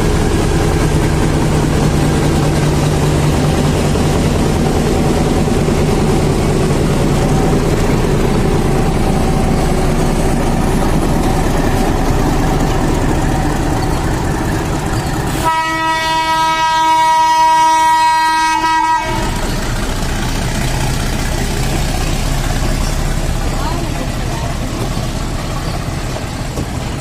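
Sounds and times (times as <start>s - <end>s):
diesel locomotive running under load: 0.0s - 27.0s
train horn blast: 15.4s - 19.4s.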